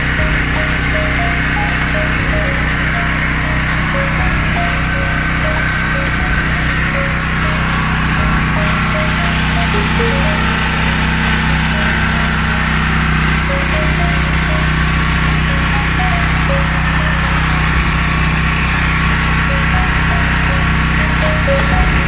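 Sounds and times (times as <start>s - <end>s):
generator engine running: 0.0s - 22.0s.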